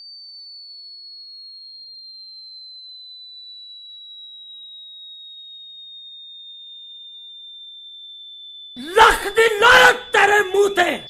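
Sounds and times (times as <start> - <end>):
loud voice: 8.8 - 11.0.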